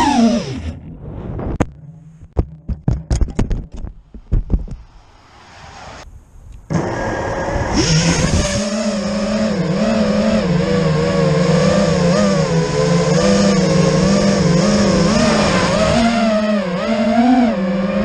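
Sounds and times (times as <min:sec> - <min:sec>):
drone motors whining: 0:00.0 - 0:01.5, 0:06.7 - 0:18.0.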